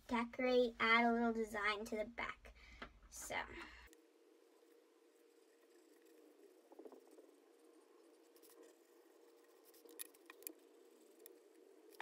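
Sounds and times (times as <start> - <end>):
marker clicking on tabletop: 9.7 - 10.6.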